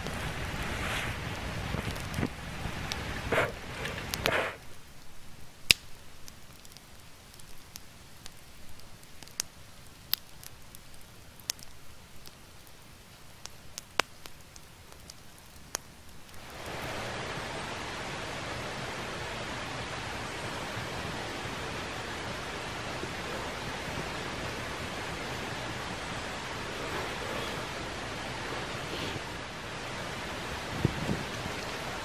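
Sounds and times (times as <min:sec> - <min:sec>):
campfire embers crackling: 0:00.0 - 0:32.0
steady rushing hiss: 0:00.0 - 0:32.0.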